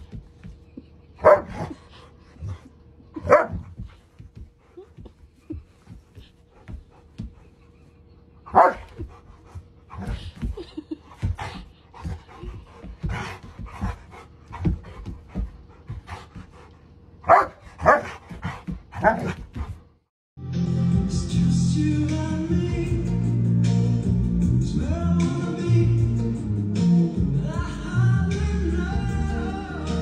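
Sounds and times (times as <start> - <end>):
dog panting and sniffing: 0.0 - 20.0
dog barking: 1.2 - 1.6, 3.2 - 3.6, 8.5 - 8.9, 17.2 - 18.2, 19.0 - 19.4.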